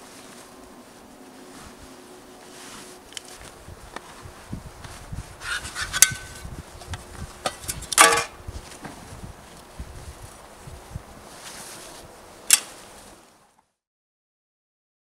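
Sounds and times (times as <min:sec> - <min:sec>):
nylon fabric rustling: 0:00.0 - 0:07.4, 0:08.4 - 0:13.3
metallic scrape with ring: 0:05.4 - 0:06.4.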